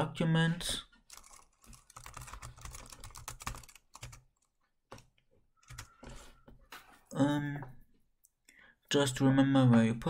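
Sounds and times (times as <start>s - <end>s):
typing on computer keyboard: 1.1s - 6.0s.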